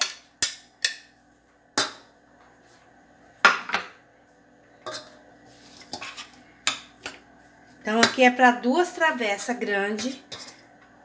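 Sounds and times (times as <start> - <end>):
spoon scraping steel bowl: 4.9 - 6.8.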